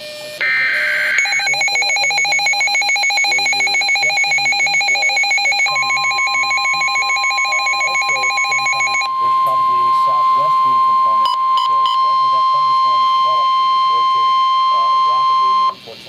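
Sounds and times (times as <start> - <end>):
fast-pulsing electronic alarm: 0.0 - 15.8
steady alarm tone: 0.0 - 16.0.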